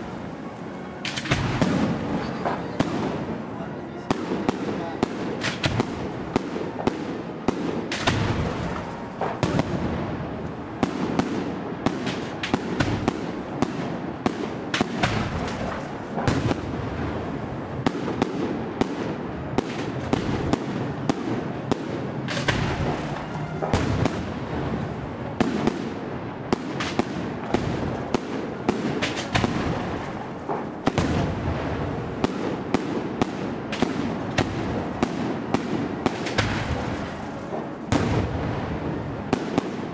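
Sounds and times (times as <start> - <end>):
firework shells bursting: 1.0 - 2.9, 4.5 - 6.9, 7.7 - 9.8, 11.9 - 16.7, 18.0 - 24.4, 25.4 - 31.4, 32.2 - 38.3.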